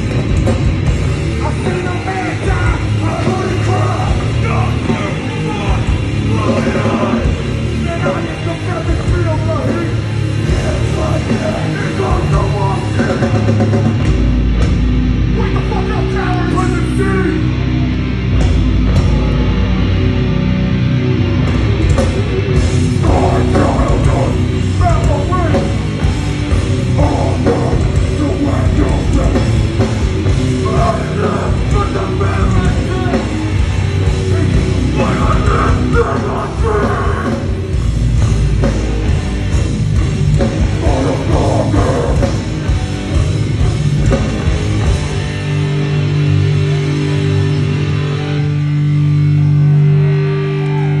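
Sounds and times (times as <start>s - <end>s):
distorted guitars: 0.0s - 51.0s
drums: 0.0s - 51.0s
punk band playing live: 0.0s - 51.0s
shouted vocals: 1.4s - 8.8s, 23.0s - 25.6s, 34.2s - 37.6s, 50.4s - 51.0s.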